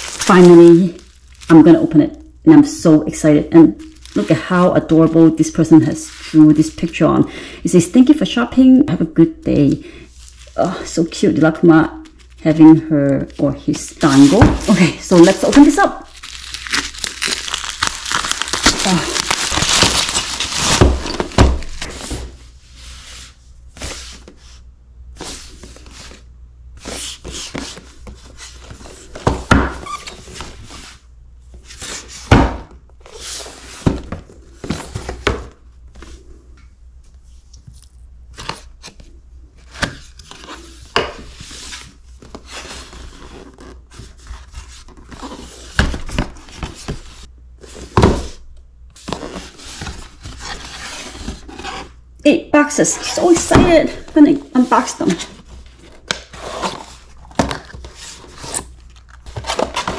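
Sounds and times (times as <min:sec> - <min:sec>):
bubble wrap crinkling: 0:00.0 - 0:02.3, 0:03.5 - 0:07.2, 0:10.1 - 0:11.4, 0:12.0 - 0:22.4, 0:53.1 - 0:59.9
cardboard flaps rustling: 0:13.7 - 0:24.5, 0:53.1 - 0:59.9.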